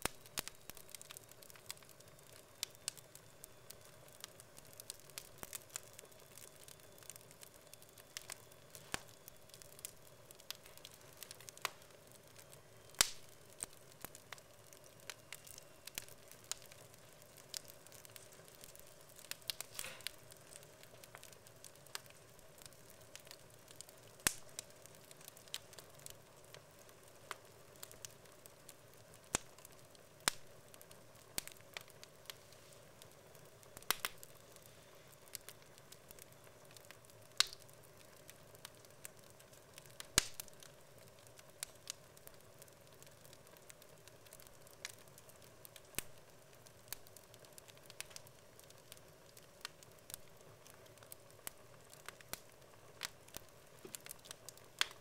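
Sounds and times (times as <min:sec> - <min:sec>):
faint steady hum: 0:00.0 - 0:55.0
logs crackling in fireplace: 0:00.0 - 0:55.0.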